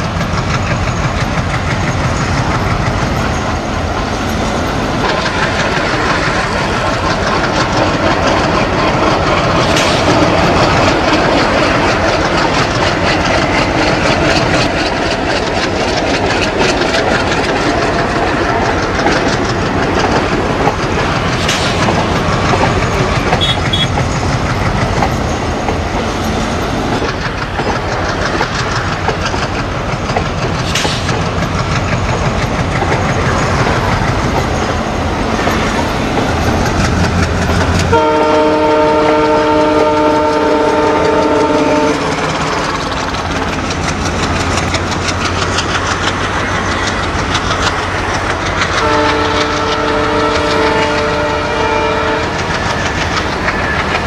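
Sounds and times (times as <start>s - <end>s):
diesel locomotive engines chugging: 0.0s - 54.0s
train on rails: 0.0s - 54.0s
multi-tone locomotive horn: 23.3s - 24.0s, 37.8s - 42.2s, 48.7s - 52.6s.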